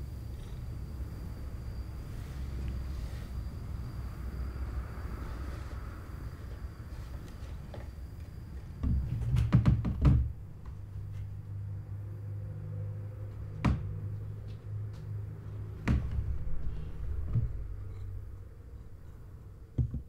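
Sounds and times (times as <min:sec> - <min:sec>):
wooden knocks and thuds: 0:08.8 - 0:10.4, 0:13.6 - 0:13.9, 0:15.8 - 0:16.4, 0:19.8 - 0:20.0.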